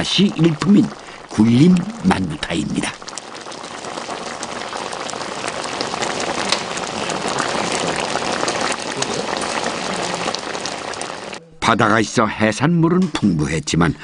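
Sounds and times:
soup boiling and bubbling: 0:00.0 - 0:11.4.

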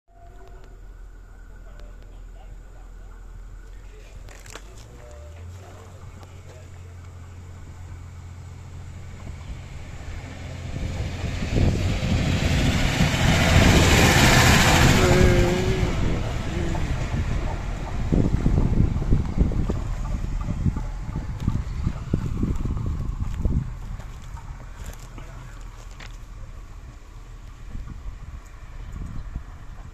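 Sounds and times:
diesel railcar engine hum: 0:00.1 - 0:29.9
train wheel noise: 0:00.1 - 0:29.9.

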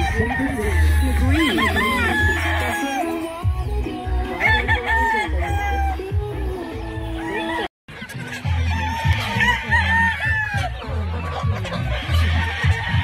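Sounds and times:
chickens clucking: 0:00.0 - 0:13.0
roosters crowing: 0:00.0 - 0:13.0
music with heavy bass beat: 0:08.4 - 0:13.0.

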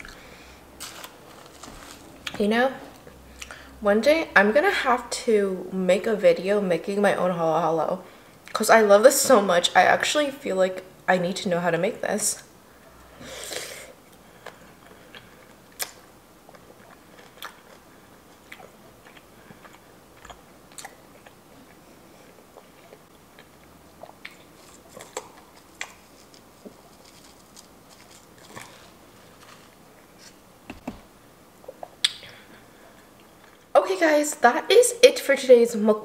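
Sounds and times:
close chewing with mouth clicks: 0:14.1 - 0:29.6.

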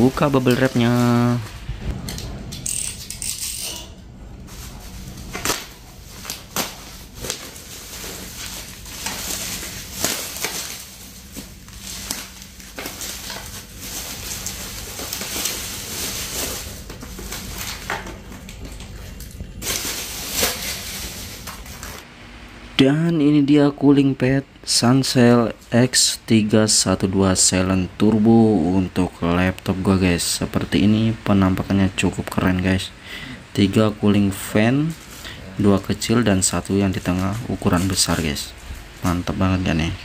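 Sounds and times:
bubble wrap crinkling and crackling: 0:00.0 - 0:01.7, 0:04.4 - 0:22.0, 0:34.5 - 0:39.3.

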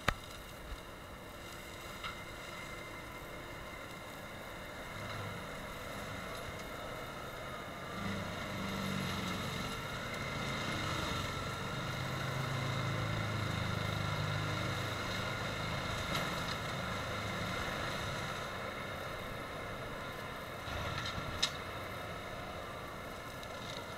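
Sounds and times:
tractor engine under load: 0:01.6 - 0:22.7
mulcher grinding brush: 0:07.9 - 0:18.6.

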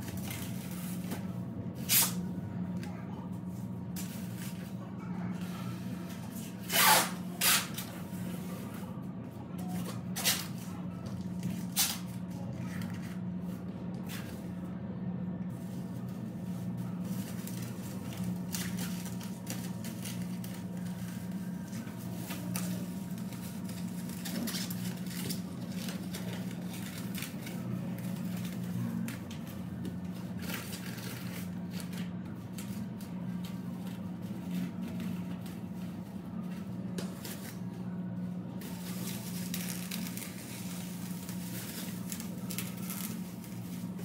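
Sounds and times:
tape ripping: 0:06.6 - 0:07.9
plastic film crinkling: 0:16.9 - 0:37.8, 0:38.6 - 0:44.0.

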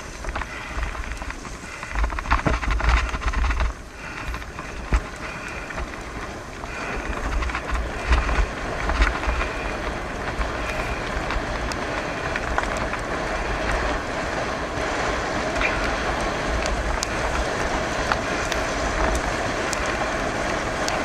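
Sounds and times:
sharp clicks and rattles: 0:00.0 - 0:14.1
bicycle tyres on gravel: 0:00.0 - 0:21.0
wind buffeting microphone: 0:00.0 - 0:21.0.

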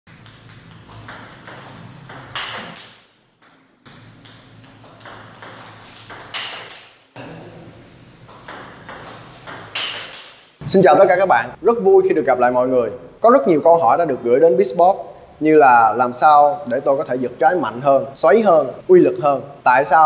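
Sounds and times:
ping pong ball bouncing on table: 0:00.1 - 0:07.0, 0:08.3 - 0:10.5
ping pong ball clicking off paddles: 0:00.1 - 0:07.0, 0:08.3 - 0:10.6.

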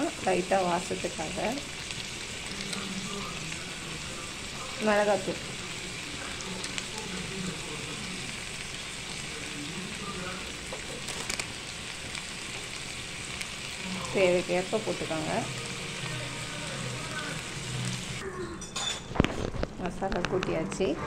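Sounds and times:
meat sizzling in oil: 0:00.0 - 0:18.2.

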